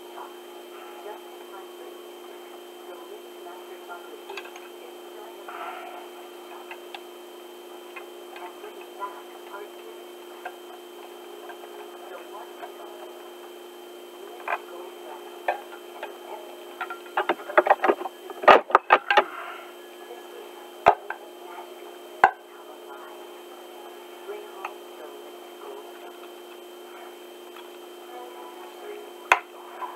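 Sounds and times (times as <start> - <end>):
steady low hum: 0.0 - 29.9.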